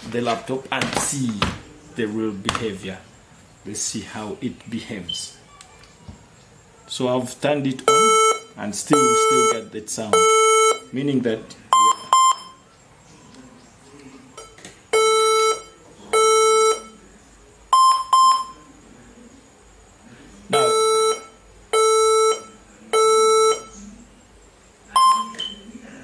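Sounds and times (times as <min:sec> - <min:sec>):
laptop error beeps: 0:07.8 - 0:11.0, 0:11.7 - 0:12.6, 0:14.4 - 0:17.0, 0:17.7 - 0:18.7, 0:20.5 - 0:23.8, 0:24.9 - 0:25.6.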